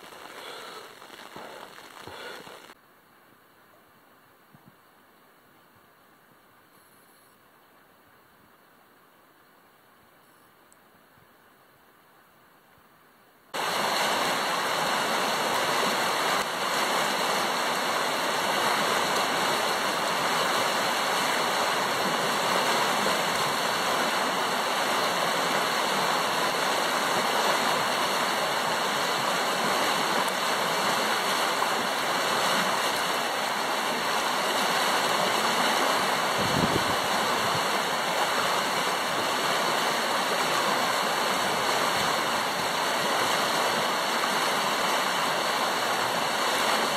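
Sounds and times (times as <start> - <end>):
river water rushing over stones: 0.0 - 2.8, 13.6 - 46.9.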